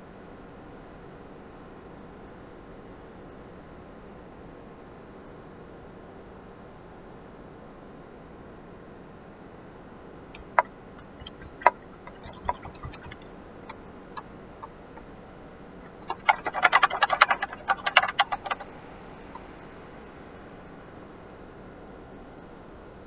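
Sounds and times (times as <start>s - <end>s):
paintbrush tapping and clicking: 10.4s - 13.3s, 15.8s - 18.7s
faint steady hiss: 15.8s - 23.0s.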